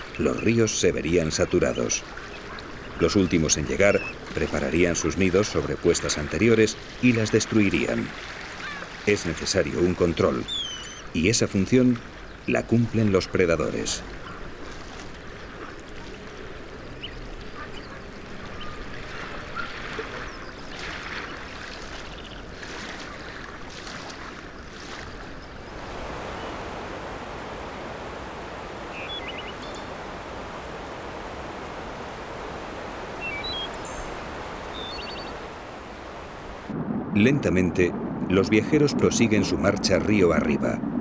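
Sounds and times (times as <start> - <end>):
flowing water rushing: 0.0 - 41.0
waves washing on shore: 0.0 - 41.0
high bird chirps: 10.4 - 11.1, 28.9 - 30.0, 33.2 - 35.4.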